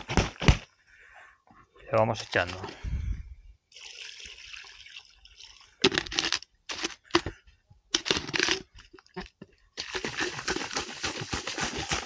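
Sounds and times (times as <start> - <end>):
brine pouring: 3.7 - 7.2, 9.8 - 12.0.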